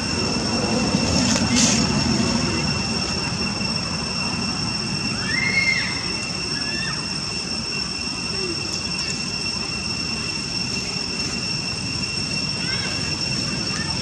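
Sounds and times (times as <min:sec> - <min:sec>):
constant rushing hiss: 0:00.0 - 0:14.0
high-pitched drones: 0:00.0 - 0:14.0.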